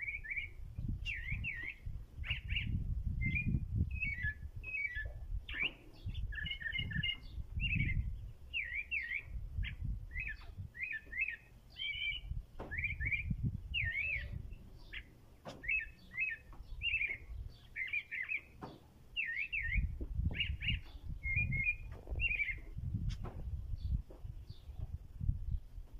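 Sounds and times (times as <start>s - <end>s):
thrush singing whistled phrases: 0.0s - 14.4s, 19.2s - 22.6s
low rumbling background noise: 0.0s - 25.9s.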